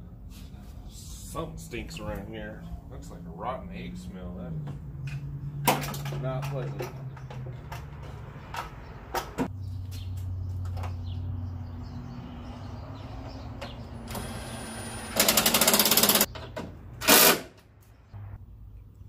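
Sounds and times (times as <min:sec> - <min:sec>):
clicks and knocks of work: 0:05.6 - 0:09.5
fast mechanical rattle: 0:14.1 - 0:16.3.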